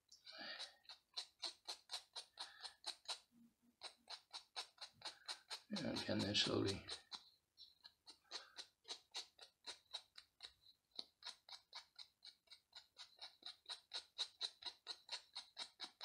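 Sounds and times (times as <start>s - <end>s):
small file rasping: 0.0s - 16.0s.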